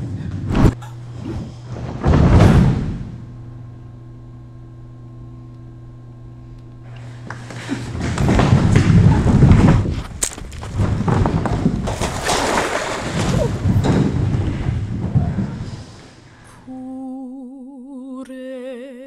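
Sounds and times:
people crawling on hard floor: 7.0 - 16.6.

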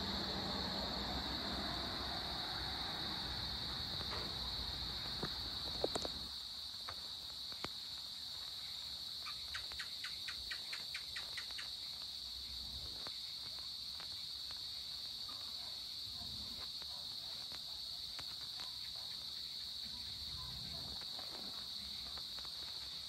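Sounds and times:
short insect chirps: 0.0 - 16.9
insect chorus drone: 0.0 - 23.0.

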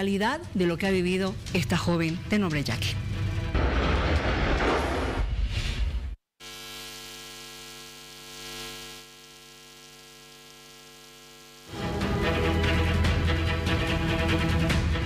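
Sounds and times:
electrical mains hum: 6.4 - 11.7.

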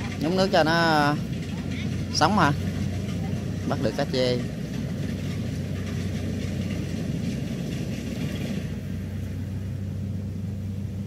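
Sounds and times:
combine harvester engine running: 0.0 - 11.0.

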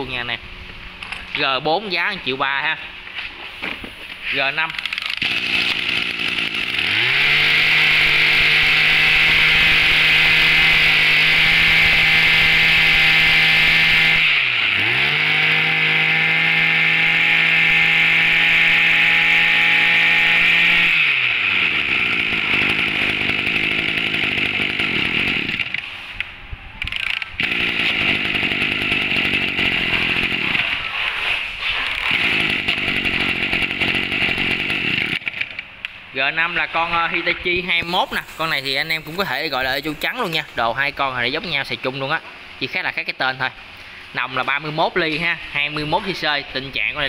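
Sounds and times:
brush-cutter engine revving: 4.7 - 26.0, 26.8 - 31.0, 31.7 - 35.7, 37.8 - 41.0.

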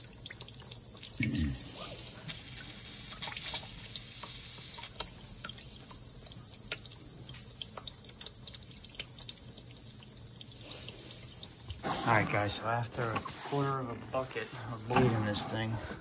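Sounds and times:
water splashing into bucket: 0.0 - 11.8
water spraying hiss: 0.0 - 11.8.

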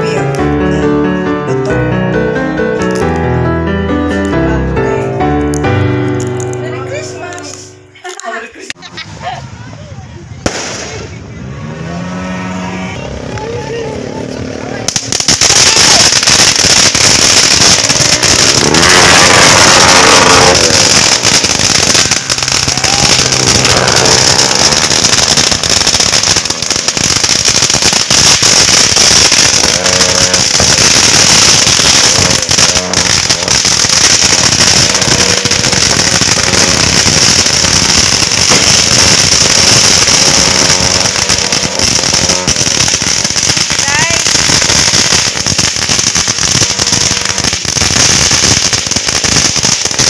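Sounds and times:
fireworks fountains hissing: 7.0 - 11.3, 13.4 - 50.0
sharp pops: 10.5 - 11.1, 14.9 - 50.0.

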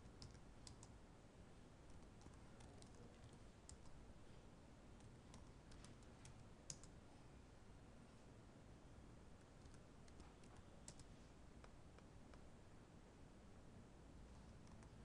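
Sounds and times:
typing on a keyboard: 0.0 - 0.9, 1.9 - 3.9, 5.3 - 6.9, 9.6 - 11.1.

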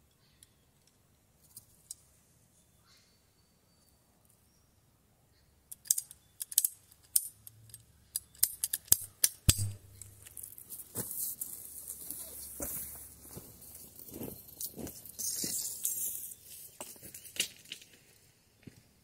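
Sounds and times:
crunching rustle: 9.9 - 18.2.

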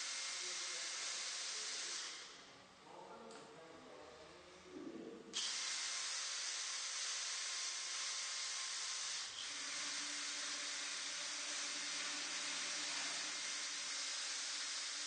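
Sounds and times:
drill drilling into steel tube: 0.0 - 2.4, 5.4 - 15.0.

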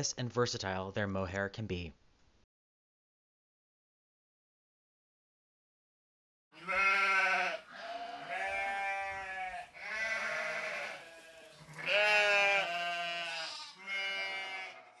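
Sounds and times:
goat bleating: 6.6 - 15.0.

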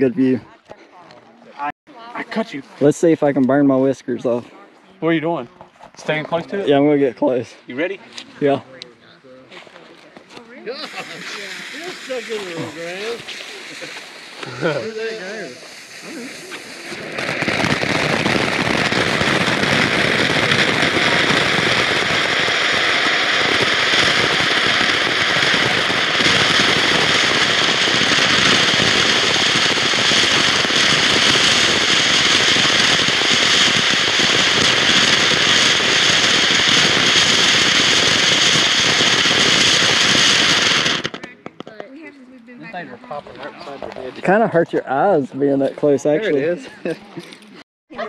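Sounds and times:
firework fountain hissing: 10.6 - 42.1.

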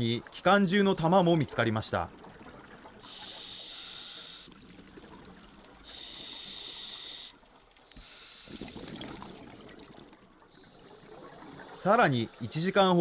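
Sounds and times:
exhaled bubbles gurgling: 1.3 - 13.0
diver inhaling through regulator: 3.0 - 4.6, 5.8 - 9.5, 10.5 - 12.6.

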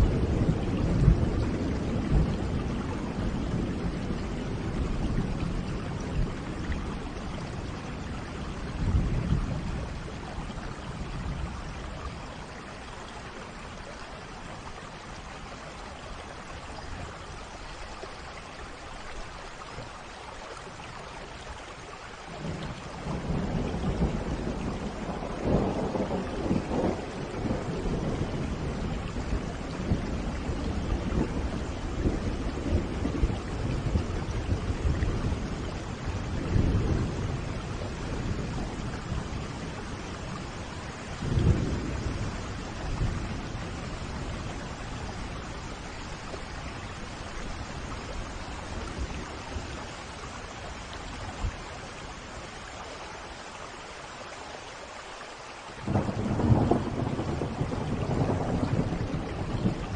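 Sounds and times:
low rolling thunder: 0.0 - 12.6, 22.3 - 51.7, 55.8 - 59.9
steady rain: 0.0 - 59.9.

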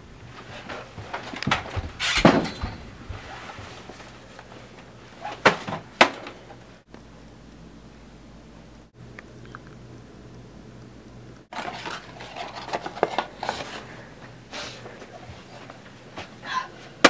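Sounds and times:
knocks and bumps: 0.4 - 4.1.

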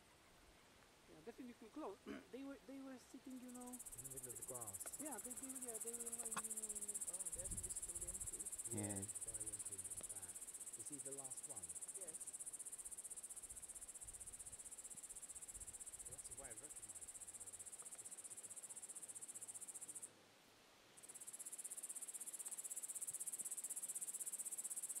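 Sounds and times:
crickets trilling: 3.1 - 20.1, 21.0 - 25.0
faint low voices murmuring: 4.3 - 12.2.

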